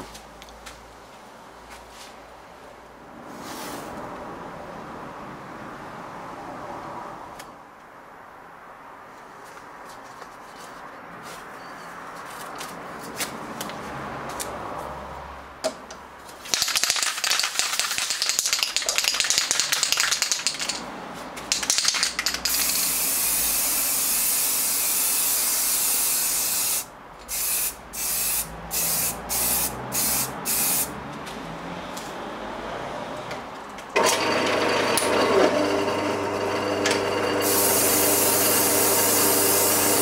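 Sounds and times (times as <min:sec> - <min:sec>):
spray can rattling: 0:16.4 - 0:30.9, 0:37.4 - 0:40.0
spray paint hissing: 0:16.5 - 0:20.8, 0:21.5 - 0:30.9, 0:37.4 - 0:40.0.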